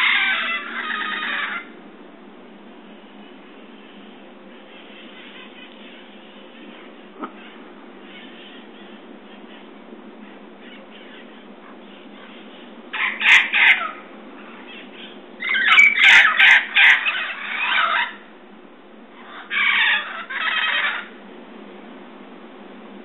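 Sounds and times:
parrots squawking: 0.0s - 1.8s, 3.8s - 18.3s, 19.1s - 21.2s.

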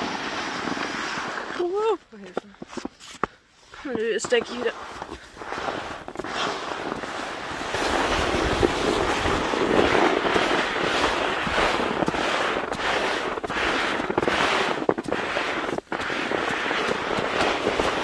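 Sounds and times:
sled scraping on slushy snow: 0.0s - 18.0s
wind on microphone: 5.4s - 18.0s.

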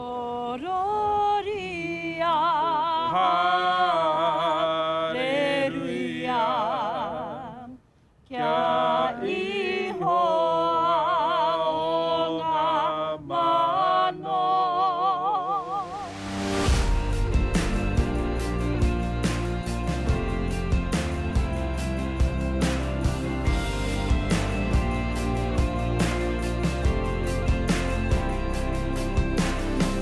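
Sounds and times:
person singing unaccompanied: 0.0s - 16.1s.

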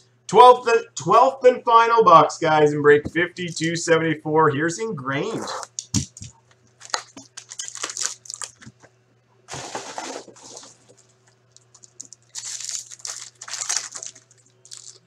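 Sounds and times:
foil wrapper tearing and crinkling: 6.8s - 8.8s, 9.5s - 15.0s.

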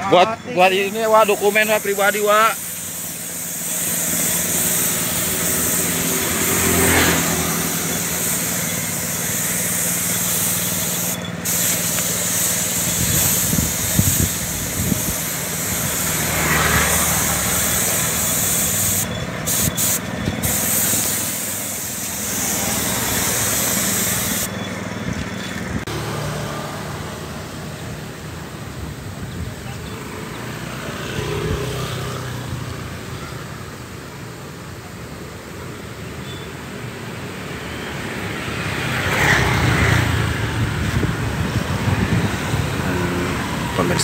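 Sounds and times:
spray gun hissing: 0.6s - 24.6s.

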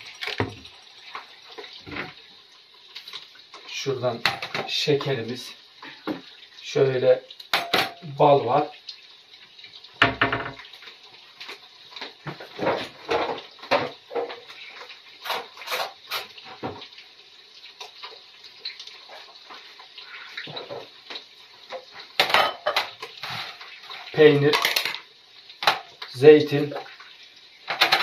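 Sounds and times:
eggs sizzling in a pan: 0.0s - 28.0s
dishes and utensils clinking: 7.5s - 8.0s, 21.7s - 25.0s, 27.7s - 28.0s.

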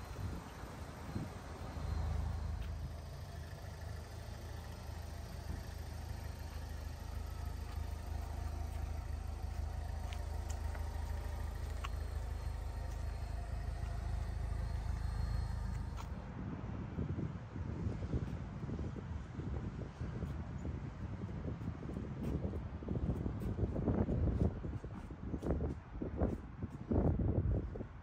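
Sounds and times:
car engine idling: 0.0s - 16.4s.

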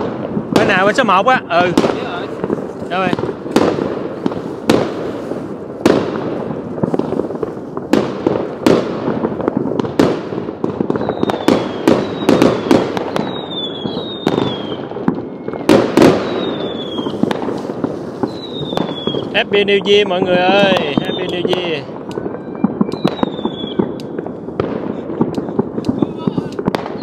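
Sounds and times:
firework bangs: 0.0s - 27.0s
falling firework whistles: 10.9s - 19.4s, 20.5s - 24.2s, 24.8s - 27.0s.

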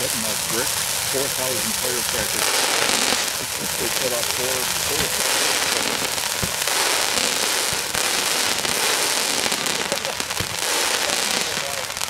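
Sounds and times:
deep firework thump: 0.0s - 12.0s
fireworks crackling: 0.0s - 12.0s.

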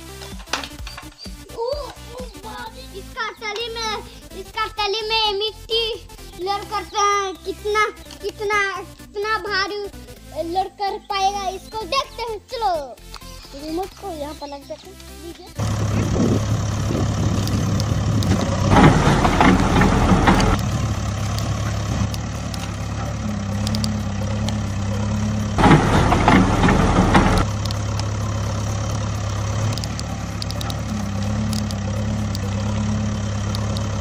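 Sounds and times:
diesel engine idling: 2.6s - 8.0s, 15.5s - 34.0s.

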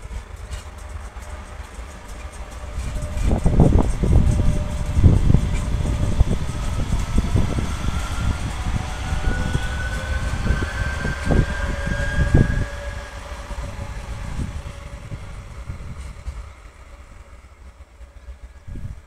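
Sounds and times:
electric train motor whine: 0.0s - 19.0s
train rumble: 0.0s - 19.0s
wind buffeting microphone: 0.0s - 19.0s.

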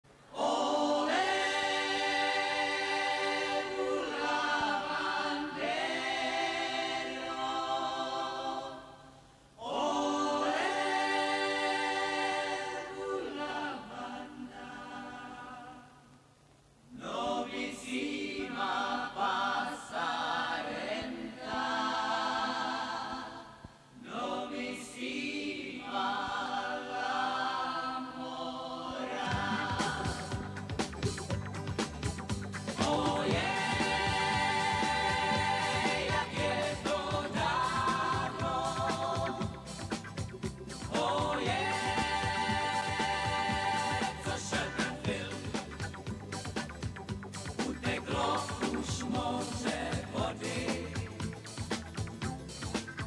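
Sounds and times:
vocal trio singing harmony: 0.2s - 16.3s, 16.9s - 31.0s, 32.6s - 46.3s, 47.4s - 51.8s.

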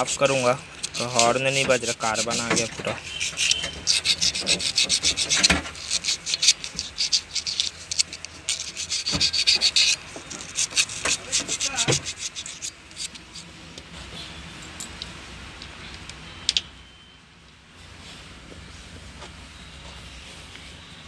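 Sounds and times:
emery paper scraping metal: 0.0s - 13.5s.

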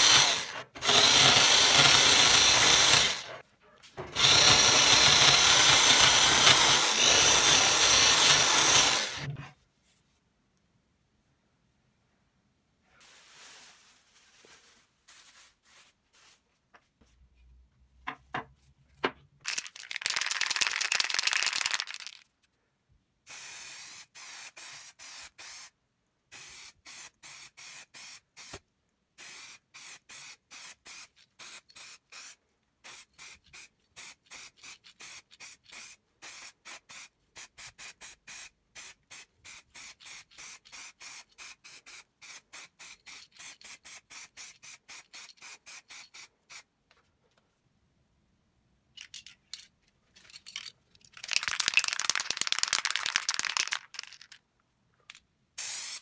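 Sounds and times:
spray paint hissing: 23.3s - 25.7s, 26.3s - 28.6s, 29.2s - 46.6s, 55.6s - 56.0s.

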